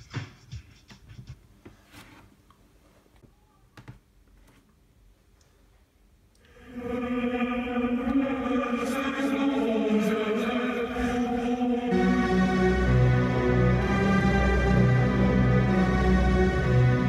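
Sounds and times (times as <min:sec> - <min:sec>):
beat-driven music from speaker: 0:00.0 - 0:01.6
steady droning chord: 0:06.5 - 0:17.0.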